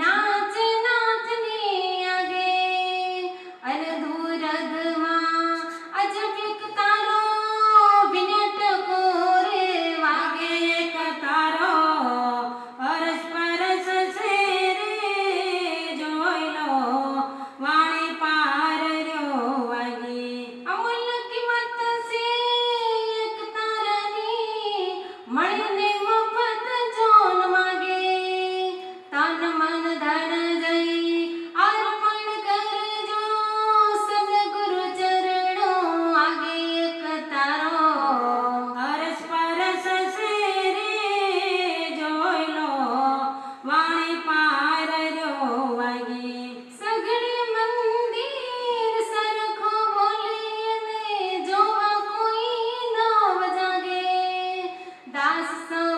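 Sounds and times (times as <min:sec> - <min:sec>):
women singing devotional song: 0:00.0 - 0:55.9.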